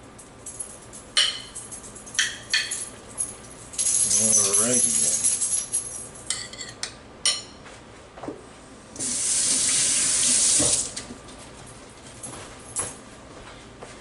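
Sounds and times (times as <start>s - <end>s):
kitchen tap running: 9.0s - 11.0s.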